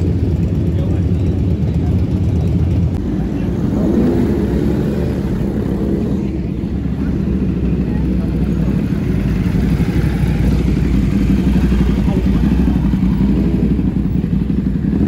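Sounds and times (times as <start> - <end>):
chatter of voices: 0.0 - 15.0
motorcycle engines running: 0.0 - 15.0.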